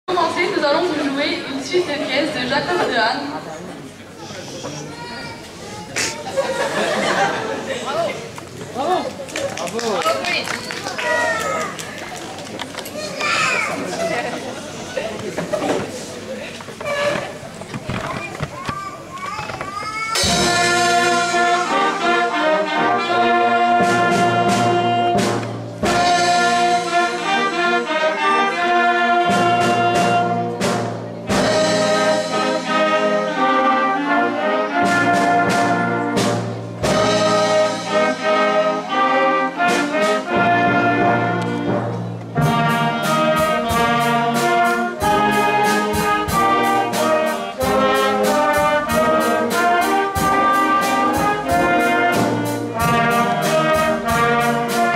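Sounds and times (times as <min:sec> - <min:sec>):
percussion strokes: 0:19.9 - 0:23.0
wind band playing: 0:20.2 - 0:54.9.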